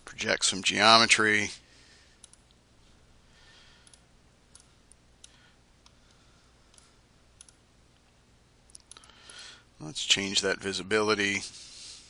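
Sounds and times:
computer mouse clicks: 2.2 - 2.6, 3.8 - 6.0, 6.7 - 7.6.

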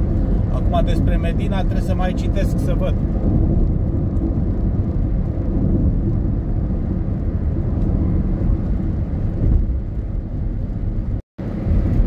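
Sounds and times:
car engine running: 0.0 - 12.0
tyre and road noise: 0.0 - 12.0.

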